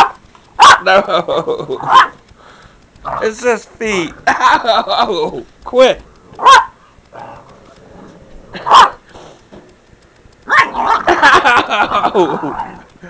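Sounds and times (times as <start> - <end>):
puppy barking: 0.0 - 0.9, 1.8 - 2.2, 6.4 - 6.8, 8.6 - 9.0, 10.5 - 11.1.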